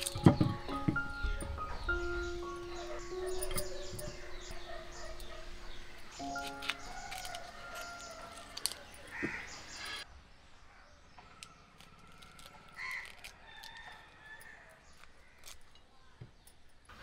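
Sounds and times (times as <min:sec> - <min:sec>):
knife scraping yam skins: 0:06.4 - 0:10.0, 0:11.8 - 0:14.1.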